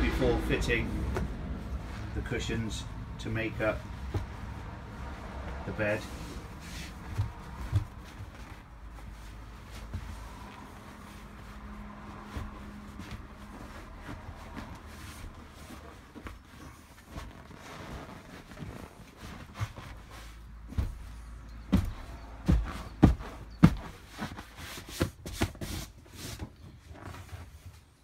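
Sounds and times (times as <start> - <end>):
seat cushions rustling: 0.1 - 28.0
dull thumps and knocks: 1.0 - 1.6, 3.8 - 4.7, 6.8 - 8.7, 18.5 - 25.7.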